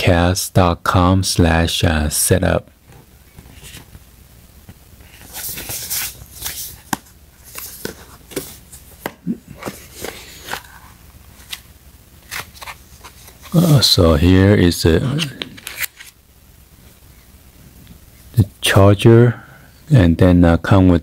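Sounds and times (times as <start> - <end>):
cardboard packaging rustling: 5.0 - 11.6.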